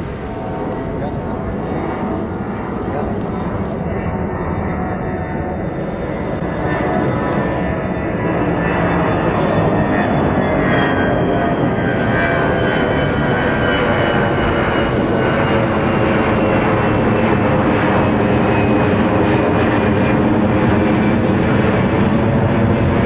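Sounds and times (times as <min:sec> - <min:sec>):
jet airliner passing overhead: 0:00.0 - 0:23.0.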